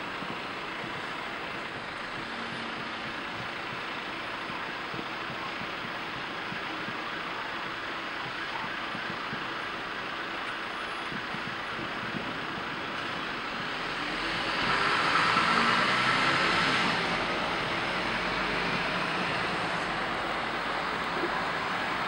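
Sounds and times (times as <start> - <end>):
car passing: 13.6 - 22.0.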